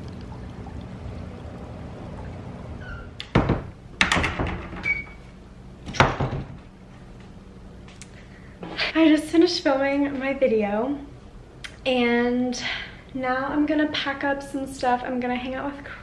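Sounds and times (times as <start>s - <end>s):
low background noise: 0.0s - 16.0s
closet doors thunking shut: 2.8s - 5.1s, 5.8s - 6.7s.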